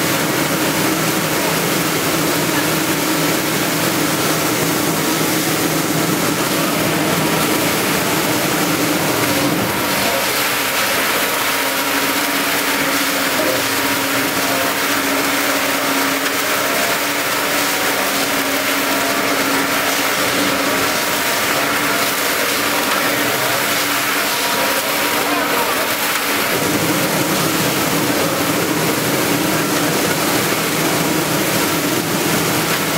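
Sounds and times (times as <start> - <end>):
machine motor hum: 0.0 - 32.9.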